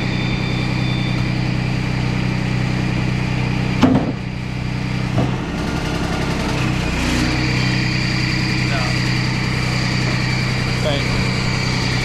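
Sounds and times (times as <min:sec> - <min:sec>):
sawmill engine running: 0:00.0 - 0:12.0
sharp knock of wood: 0:03.8 - 0:04.2.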